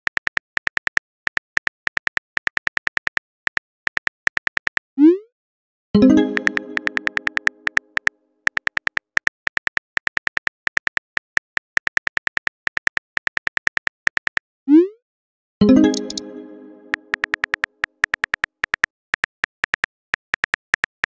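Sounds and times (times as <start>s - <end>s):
keyboard typing ticks: 0.0s - 4.8s, 6.0s - 14.4s, 15.7s - 21.0s
message chime: 6.0s - 7.8s, 15.6s - 17.4s.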